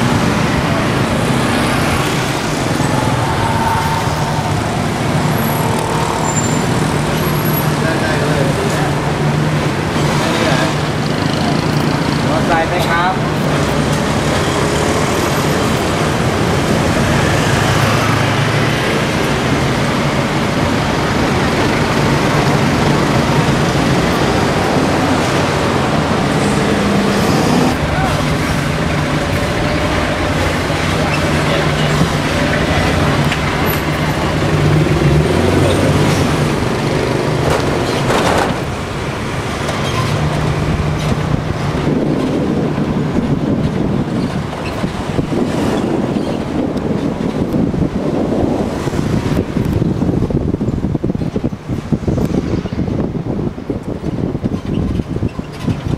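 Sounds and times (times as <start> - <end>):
traffic engine hum and road noise: 0.0 - 55.9
voices: 0.4 - 14.1, 21.2 - 38.6.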